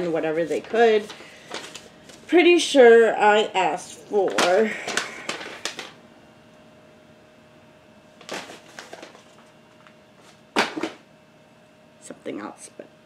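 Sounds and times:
faint steady hum: 0.0 - 13.0
handling noise: 8.2 - 11.0.

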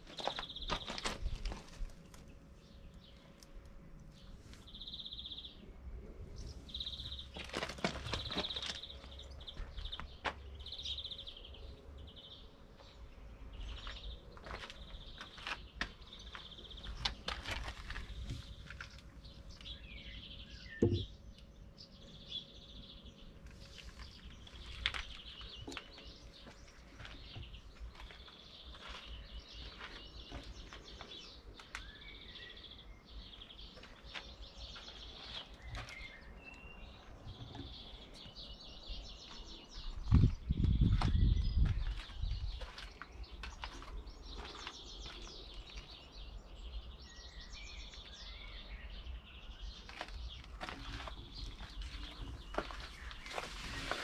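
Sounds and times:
footsteps on gravel: 0.0 - 2.1, 6.9 - 10.7, 13.6 - 19.8, 23.5 - 32.0, 33.6 - 36.4, 39.2 - 46.0, 49.8 - 54.0
sharp knock: 20.8 - 21.1.

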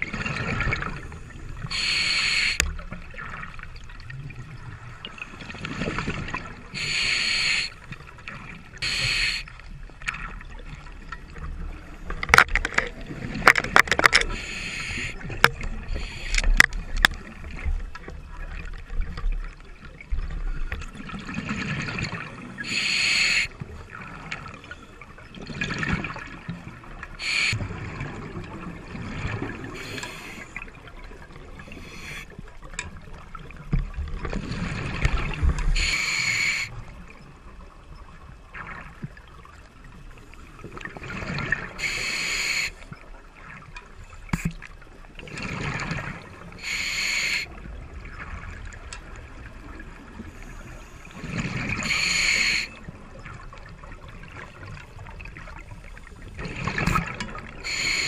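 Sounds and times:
scuba regulator breathing: 1.7 - 2.6, 6.8 - 7.8, 8.8 - 9.5, 14.2 - 15.2, 15.8 - 16.7, 22.6 - 23.5, 27.2 - 27.6, 29.7 - 30.6, 31.6 - 32.3, 35.6 - 36.8, 41.8 - 42.8, 46.6 - 47.5, 50.3 - 52.8, 57.6 - 58.0.

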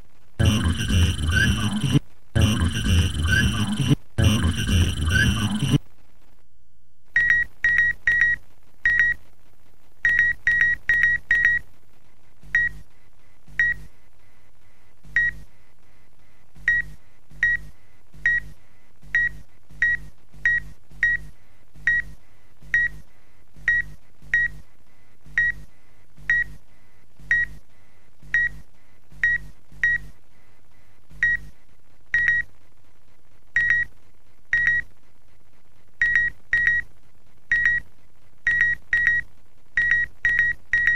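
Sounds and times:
faint low hum: 0.0 - 40.9
short electronic beeps: 0.4 - 5.8.

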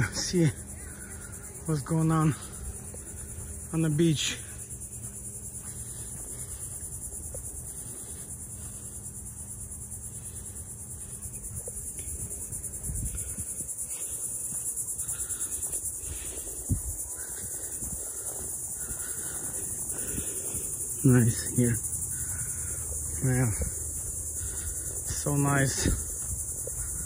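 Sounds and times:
footsteps on sandy path: 0.0 - 27.0
insects buzzing: 0.0 - 27.0.

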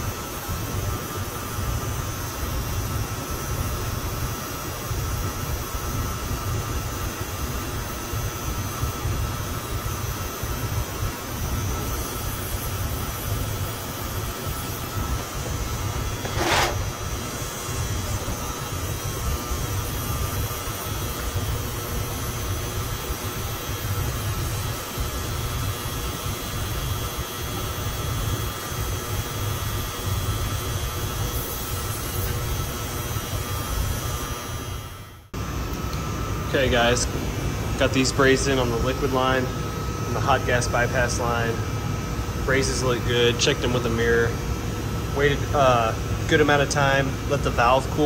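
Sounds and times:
torch flame rumble and hiss: 0.0 - 48.0
air-handling equipment drone: 9.9 - 23.6, 35.4 - 48.0.

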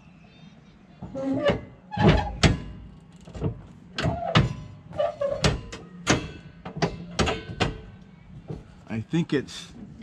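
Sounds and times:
metal hitch clanking: 1.2 - 8.1.

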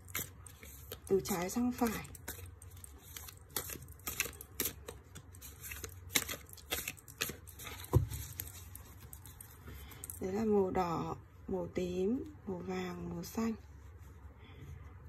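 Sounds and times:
cards being shuffled: 0.0 - 10.2.

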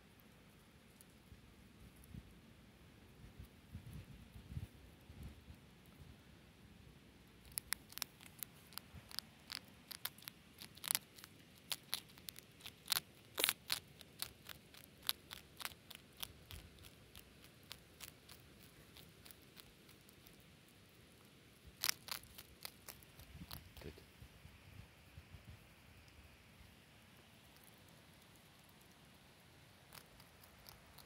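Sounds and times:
hedgehog crunching biscuits: 7.3 - 24.2, 25.9 - 31.0.

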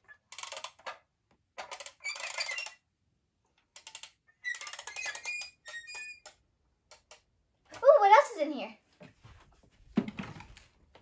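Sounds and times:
plastic toys clattering: 0.0 - 2.8, 3.7 - 6.2
faint toy squeaks: 4.3 - 6.3.

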